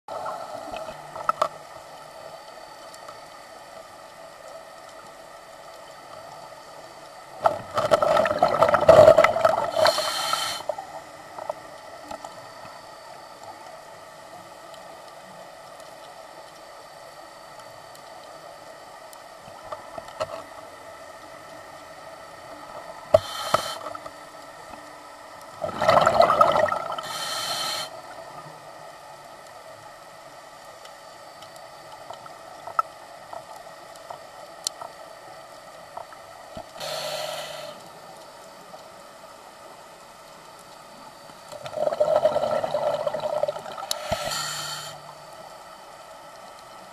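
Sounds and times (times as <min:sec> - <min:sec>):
steady background hum: 0:00.1 - 0:46.9
exhaled bubbles underwater: 0:07.4 - 0:10.2, 0:25.6 - 0:27.2, 0:41.5 - 0:44.3.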